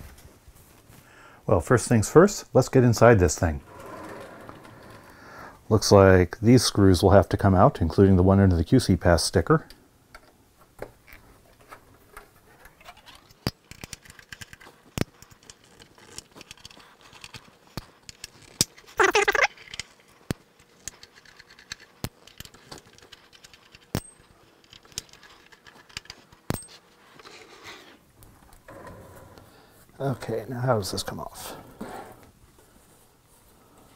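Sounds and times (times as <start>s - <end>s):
metal scrape: 3.6s - 5.6s.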